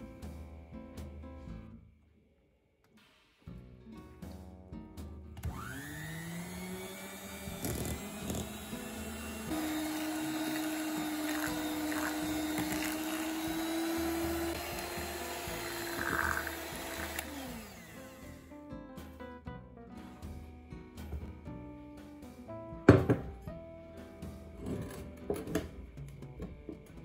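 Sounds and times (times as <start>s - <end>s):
electric hand mixer whine: 5.4s - 18.5s.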